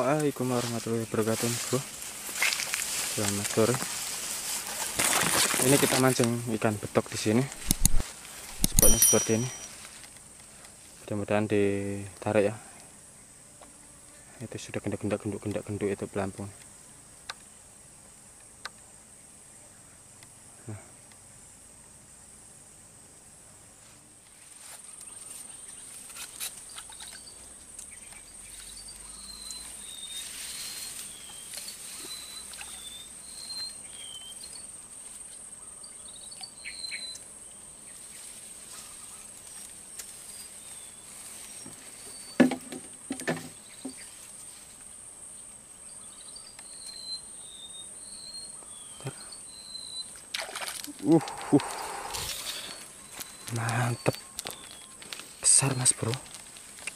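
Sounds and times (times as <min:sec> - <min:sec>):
insects droning: 0:00.0 - 0:56.9
bird chirps: 0:26.7 - 0:34.6, 0:35.7 - 0:37.2.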